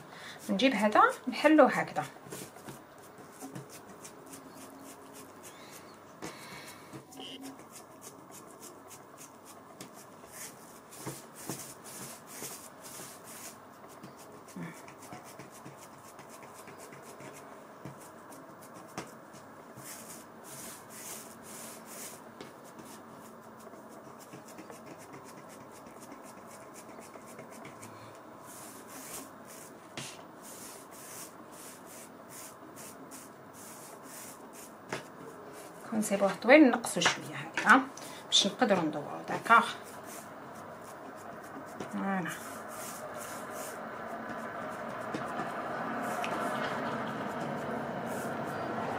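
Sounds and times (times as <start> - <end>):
hands rolling dough on worktop: 0.0 - 48.9.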